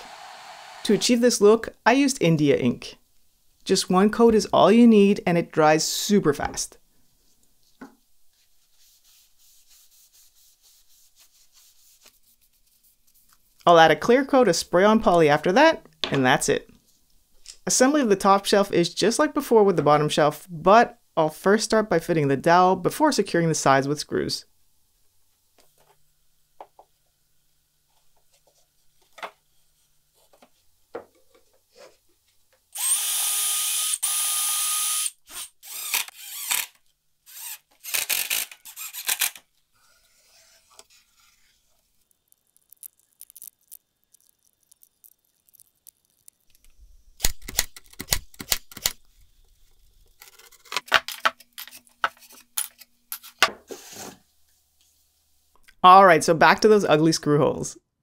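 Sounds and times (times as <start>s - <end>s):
drill driving screws into wood: 0.0s - 1.0s, 32.8s - 39.4s.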